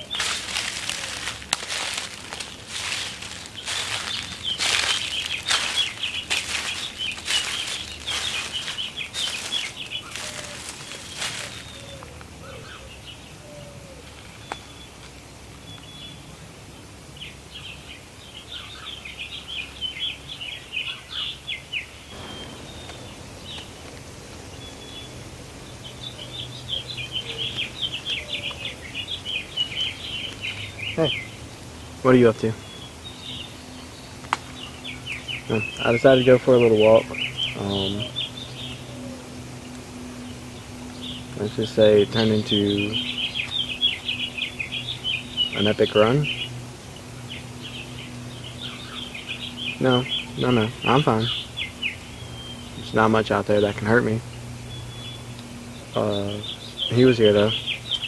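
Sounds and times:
footsteps crunching dry leaves: 0:00.0 - 0:12.1, 0:22.1 - 0:51.5
songbirds chirping: 0:00.0 - 0:58.0.

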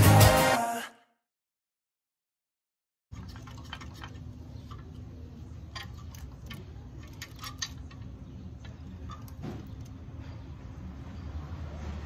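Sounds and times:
small metallic clicks and clinks: 0:03.2 - 0:10.4.

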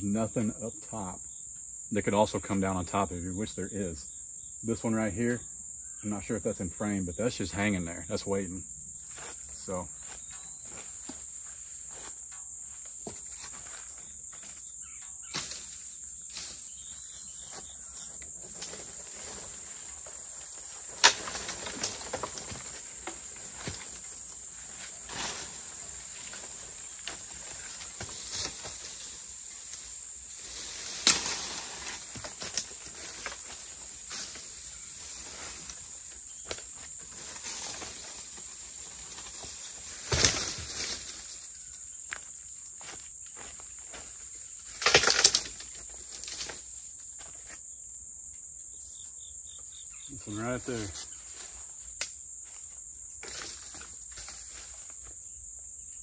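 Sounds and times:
high-pitched insect chorus: 0:00.0 - 0:56.0
rustling brush: 0:09.0 - 0:14.6
dead branches snapping: 0:15.2 - 0:16.6, 0:18.5 - 0:35.8, 0:36.4 - 0:38.3, 0:39.0 - 0:41.3, 0:44.7 - 0:46.6.

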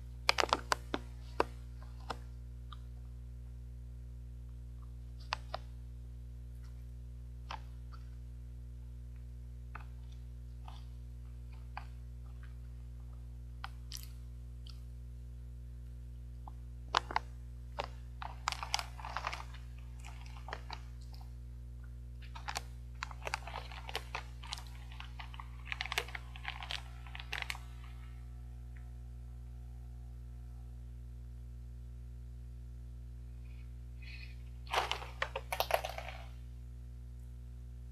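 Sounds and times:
steady low hum: 0:00.0 - 0:37.9
snack crunching in mouth: 0:13.6 - 0:14.9, 0:16.4 - 0:21.4, 0:22.2 - 0:27.8, 0:34.7 - 0:36.3
plastic bag crackling: 0:17.8 - 0:21.2, 0:22.2 - 0:27.8, 0:34.6 - 0:36.3.

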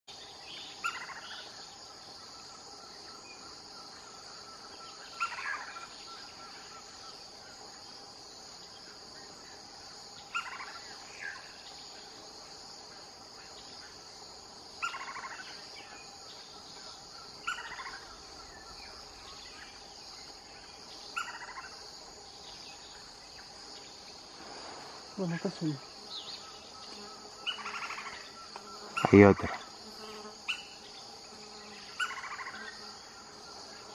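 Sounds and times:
high-pitched insect chorus: 0:00.1 - 0:33.9.

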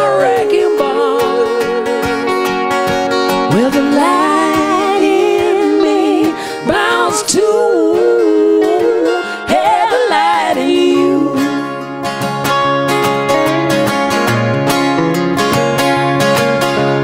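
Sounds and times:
woman singing: 0:00.0 - 0:02.6, 0:03.3 - 0:12.0
acoustic guitar: 0:00.0 - 0:17.0.

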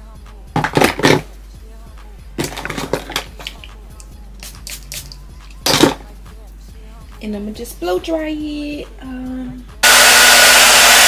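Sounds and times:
hairspray hissing bursts: 0:04.4 - 0:05.2.

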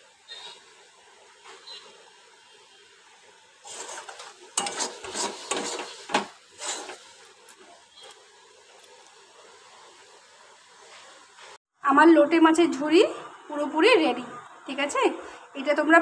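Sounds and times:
metal spatula scraping pan: 0:03.6 - 0:07.2.

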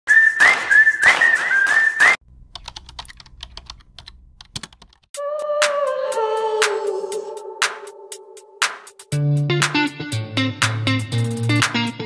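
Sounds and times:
whistled tune over beats: 0:00.1 - 0:02.2
keyboard typing clicks: 0:02.5 - 0:05.1
music: 0:05.2 - 0:12.0.

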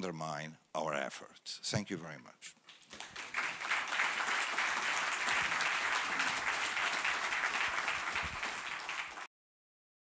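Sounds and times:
audience applauding: 0:02.7 - 0:09.3.

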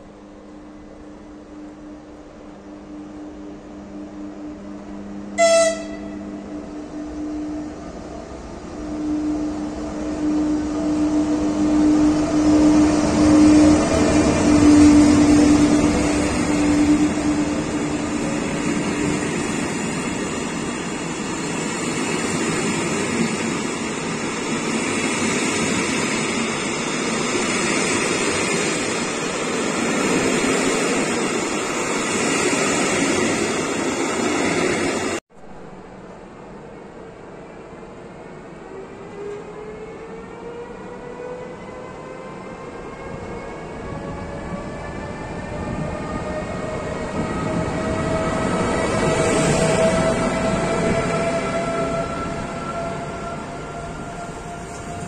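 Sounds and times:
electric locomotive hum: 0:00.0 - 0:55.0
train wheels rolling on rails: 0:38.7 - 0:55.0.

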